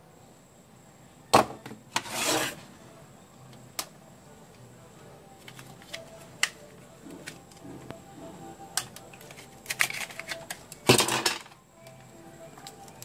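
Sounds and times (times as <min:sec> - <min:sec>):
plastic parts clicking: 0:08.7 - 0:12.0
plastic parts clattering: 0:08.8 - 0:11.6.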